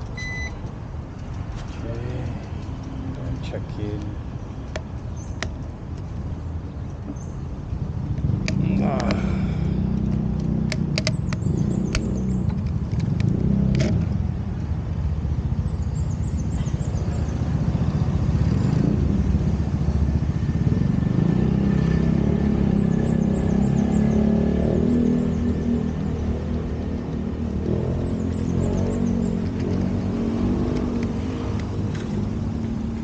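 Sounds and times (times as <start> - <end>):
sharp clicks: 0.0 - 6.3, 6.9 - 9.3, 9.9 - 14.2.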